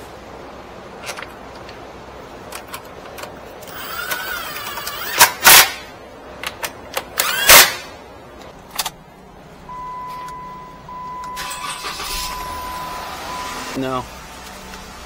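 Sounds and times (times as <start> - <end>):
car engine idling: 8.6 - 15.0
high electronic beep: 9.7 - 13.8.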